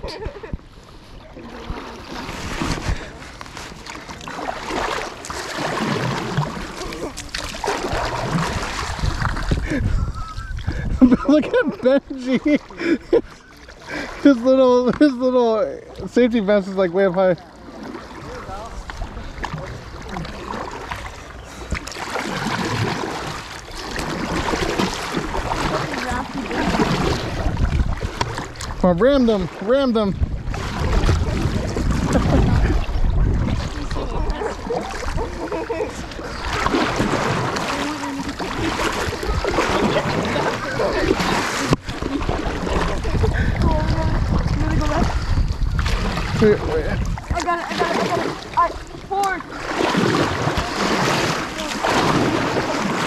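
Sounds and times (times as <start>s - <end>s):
paddles splashing in water: 0.0s - 53.0s
water swishing along hull: 0.0s - 53.0s.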